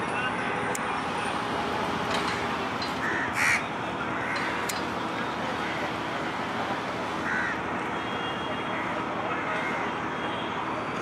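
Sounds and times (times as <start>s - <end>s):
ferry engine hum: 0.0s - 11.0s
crows cawing: 3.0s - 4.6s, 7.2s - 7.6s, 9.6s - 9.8s.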